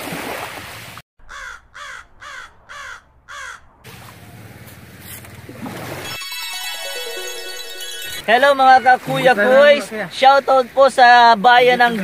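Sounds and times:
crow cawing: 0:01.2 - 0:03.7.

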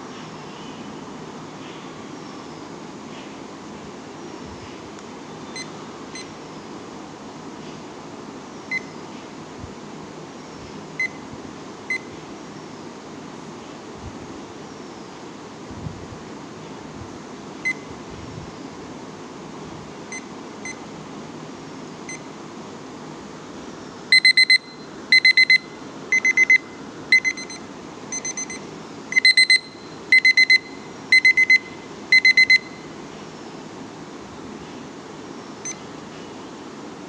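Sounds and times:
short key beeps: 0:24.1 - 0:32.8
timer alarm beeping: 0:24.1 - 0:32.9.

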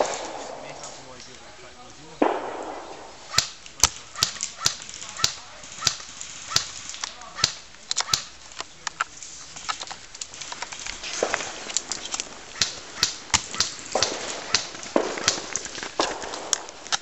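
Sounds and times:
airsoft gun shots: 0:00.0 - 0:00.8, 0:02.2 - 0:06.7, 0:12.6 - 0:17.0.

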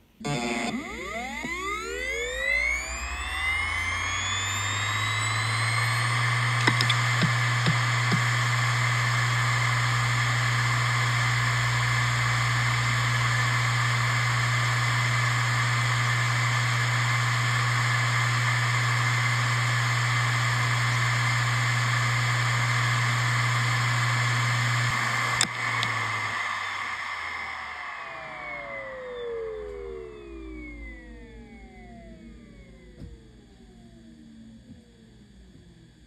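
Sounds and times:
hard drive spinning hum: 0:00.0 - 0:36.0
sharp click: 0:06.6 - 0:08.2.

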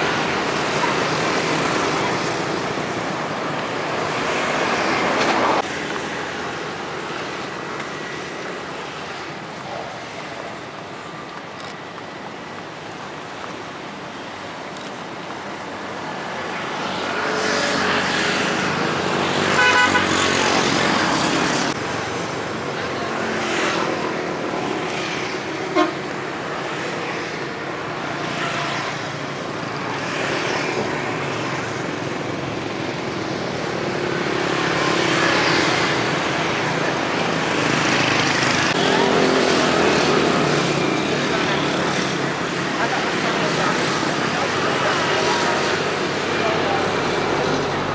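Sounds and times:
road traffic noise: 0:00.0 - 0:47.9
vehicle horn tooting: 0:19.6 - 0:20.3, 0:25.7 - 0:26.0.

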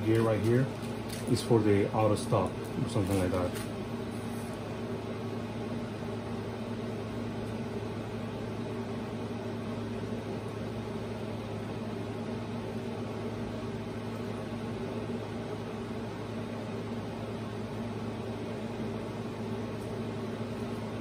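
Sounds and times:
appliance hum and hiss: 0:00.0 - 0:21.0.

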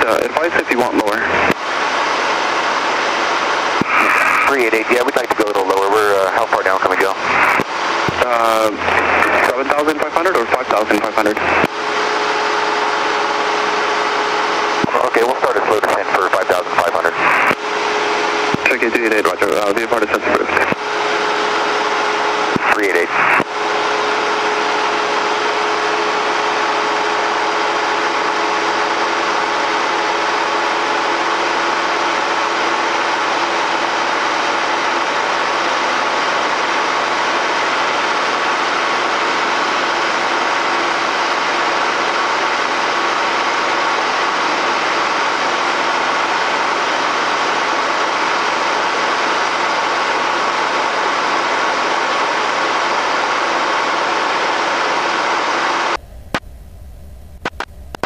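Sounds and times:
light aircraft engine droning: 0:00.0 - 0:58.0.

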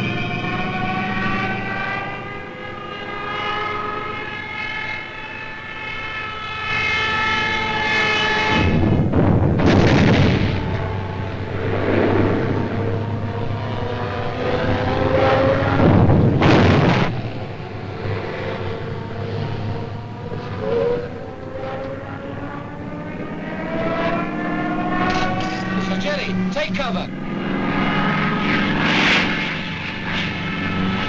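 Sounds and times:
aircraft engine whine rising: 0:00.0 - 0:31.0
aircraft roar: 0:00.0 - 0:31.0
loud explosions: 0:08.7 - 0:11.0, 0:15.8 - 0:17.4.

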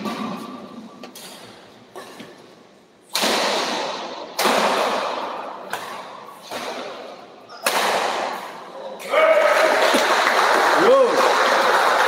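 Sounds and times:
rackets hitting shuttlecock: 0:03.0 - 0:08.7.

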